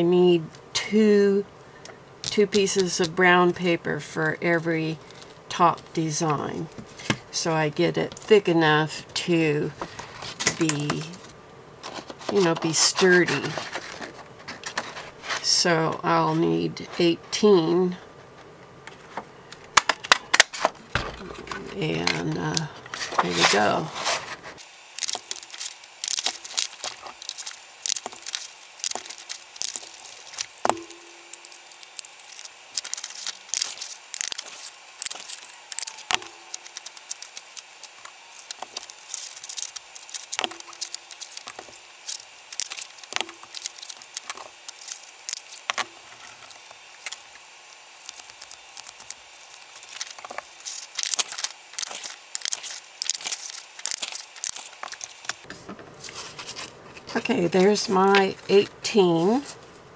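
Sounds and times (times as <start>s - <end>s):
paper rustling and sliding: 9.8s - 15.5s, 20.3s - 57.1s.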